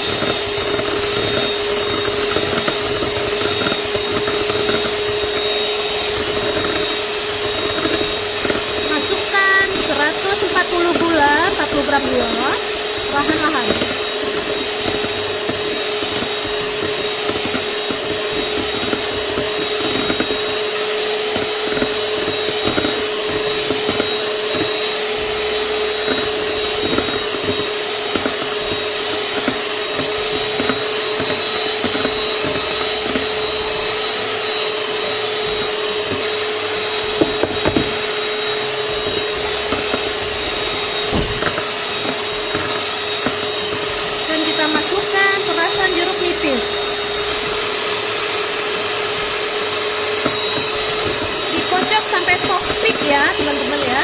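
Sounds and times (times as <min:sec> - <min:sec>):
electric hand mixer whirring: 0:00.0 - 0:54.0.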